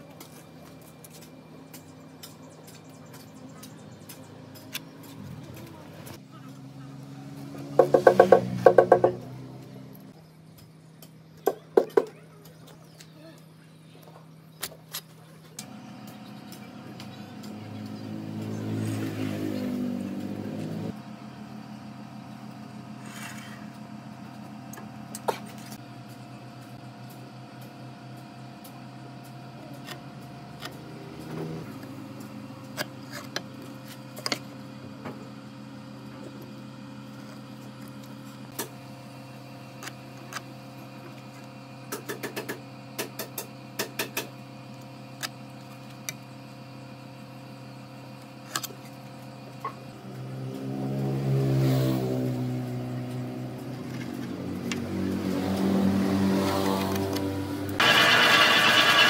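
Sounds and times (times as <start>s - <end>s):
workshop machine humming: 0.0s - 59.0s
loud motor: 2.6s - 10.2s, 15.6s - 59.0s
sharp knocks and taps: 7.8s - 9.2s.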